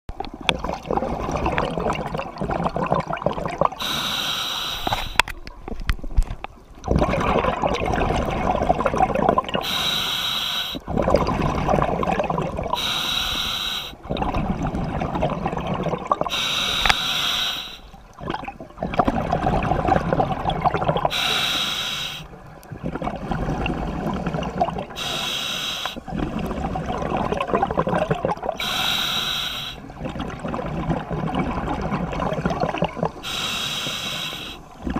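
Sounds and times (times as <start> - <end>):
bubbling exhale: 0.6 - 5.2, 6.9 - 34.9
regulator hissing inhale: 3.8 - 5.2, 9.6 - 10.9, 12.8 - 14.0, 16.3 - 18.0, 21.1 - 22.4, 25.0 - 26.1, 28.6 - 29.9, 33.2 - 34.8.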